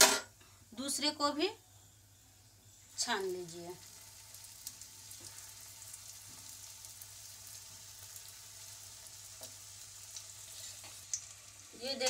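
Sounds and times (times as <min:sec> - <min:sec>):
dough sizzling in hot oil: 0:02.7 - 0:12.0.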